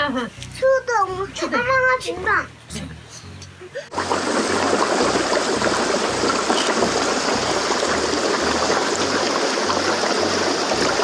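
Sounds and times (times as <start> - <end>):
stream rushing: 3.9 - 11.0.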